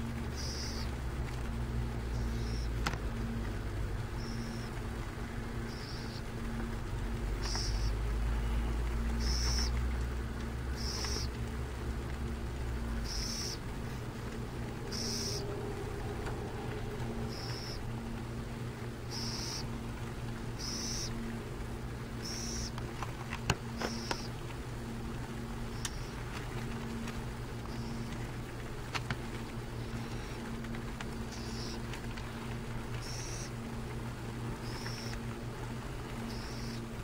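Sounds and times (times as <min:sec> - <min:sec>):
steady low hum: 0:00.0 - 0:37.0
owl chick raspy begging hiss: 0:00.4 - 0:00.9, 0:07.4 - 0:09.8, 0:10.8 - 0:11.3, 0:13.0 - 0:14.1, 0:14.9 - 0:15.7, 0:17.2 - 0:17.9, 0:19.1 - 0:19.7, 0:20.5 - 0:21.2, 0:22.2 - 0:22.8, 0:31.3 - 0:31.9, 0:33.0 - 0:33.6, 0:34.6 - 0:35.2, 0:36.2 - 0:36.9.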